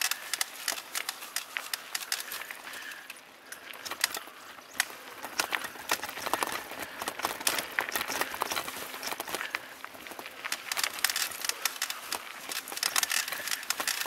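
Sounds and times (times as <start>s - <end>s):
bike rattling: 0.0s - 14.0s
tyres crunching over stones: 0.0s - 14.0s.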